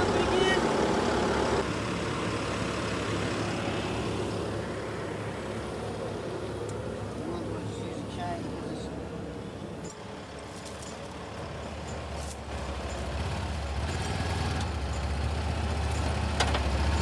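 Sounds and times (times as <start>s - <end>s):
knocks and rattles: 9.9s - 16.7s.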